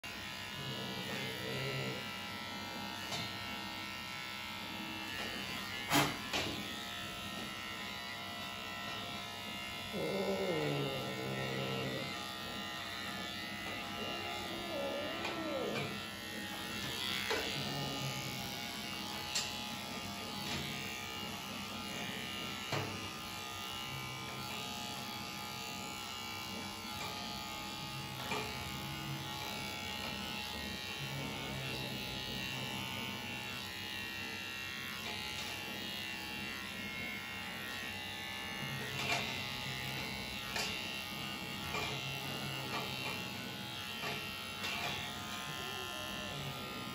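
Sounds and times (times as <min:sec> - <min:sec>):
electric pet clippers buzzing: 0:00.0 - 0:46.9.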